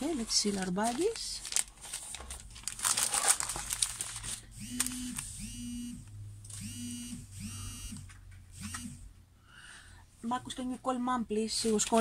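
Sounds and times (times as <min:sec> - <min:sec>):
plastic crinkling: 0:00.0 - 0:05.3, 0:11.5 - 0:12.0
phone vibrating: 0:04.6 - 0:09.1.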